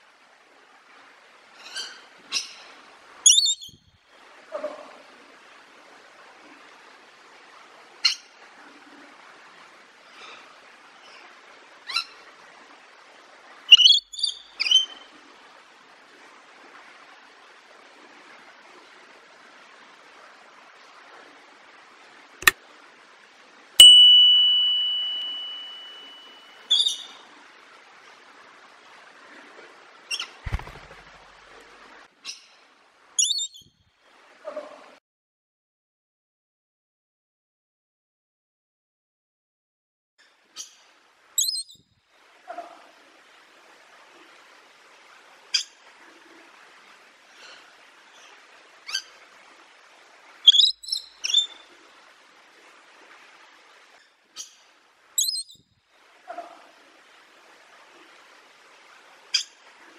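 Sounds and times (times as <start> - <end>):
bird chirps: 3.3 - 3.8, 13.7 - 14.9, 23.8 - 27.1, 33.2 - 33.6, 41.4 - 41.7, 50.5 - 51.5, 55.2 - 55.6
loud ringing tone: 23.8 - 26.5
sharp click: 30.5 - 31.2.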